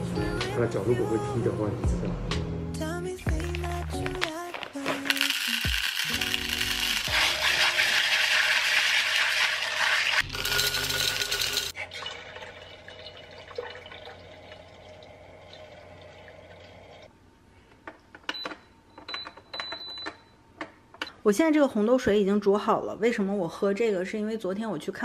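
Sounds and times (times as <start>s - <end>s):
tap water running over beans: 3.3s - 16.7s
water filling glass jar: 3.3s - 17.1s.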